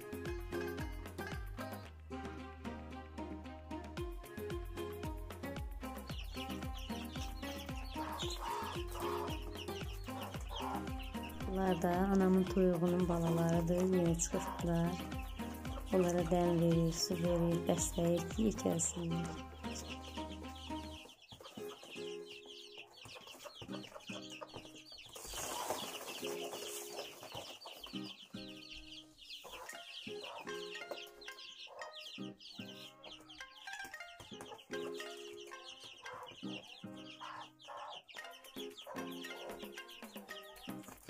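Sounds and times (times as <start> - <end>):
soft background music: 0.0 - 41.0
chicks peeping: 5.1 - 41.0
hen clucking: 6.1 - 41.0.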